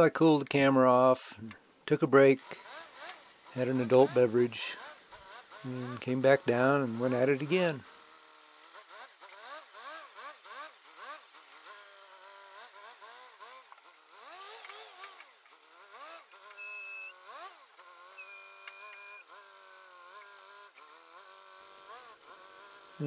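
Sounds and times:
forklift engine revving: 0:02.2 - 0:23.0
thin high whine: 0:16.4 - 0:17.2, 0:18.1 - 0:19.3.

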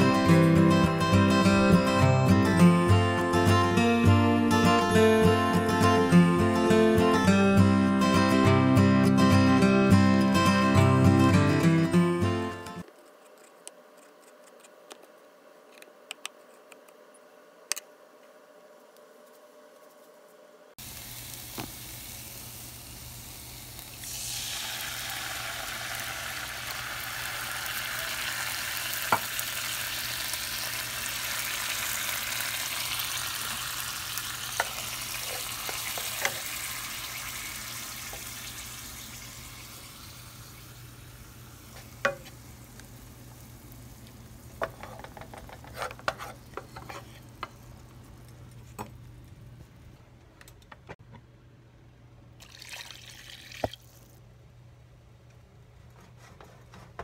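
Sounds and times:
sauce sizzling in frying pan: 0:20.8 - 0:44.9
spatula scraping pan: 0:44.7 - 0:47.3.

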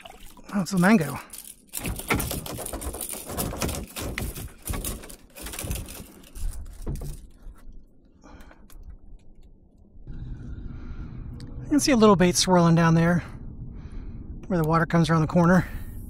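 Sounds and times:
knocks and clicks of handling gear: 0:01.2 - 0:09.8.

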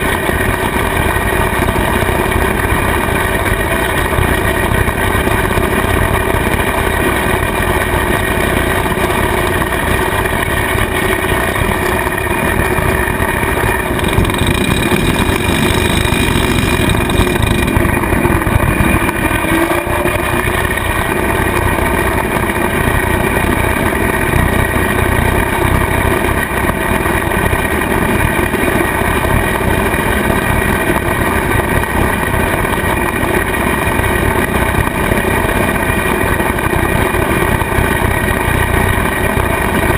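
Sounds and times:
rotary cutter mowing grass: 0:00.0 - 0:39.9
tractor diesel engine under load: 0:00.0 - 0:39.9.

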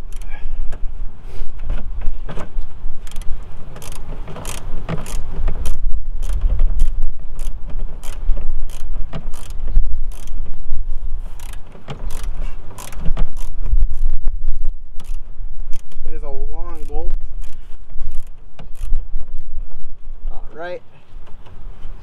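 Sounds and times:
ratchet wrench clicking: 0:00.0 - 0:00.4, 0:03.0 - 0:10.4, 0:11.3 - 0:14.2, 0:15.0 - 0:16.0, 0:16.7 - 0:19.0.

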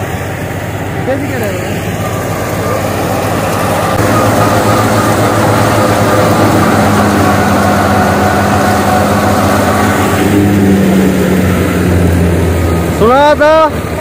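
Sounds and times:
threshing drum whirring: 0:00.0 - 0:14.0
tractor engine humming under load: 0:00.0 - 0:14.0.

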